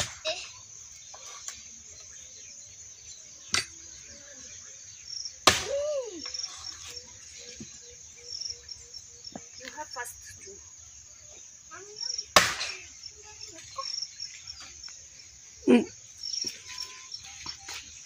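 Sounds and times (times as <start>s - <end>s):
high insect chirring: 0.2s - 18.0s
axe chopping log: 3.5s - 3.7s, 5.4s - 5.9s, 12.4s - 12.7s.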